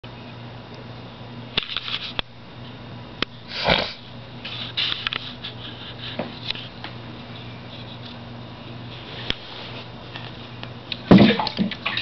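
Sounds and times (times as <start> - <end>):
steady low hum: 0.0 - 12.0
water splashing: 11.1 - 12.0.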